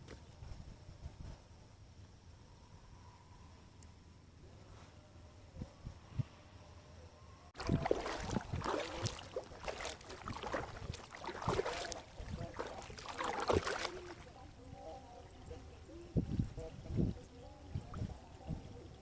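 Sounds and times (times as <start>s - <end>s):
paddle knocking against hull: 7.6s - 14.2s
paddle splashing in water: 7.6s - 14.5s.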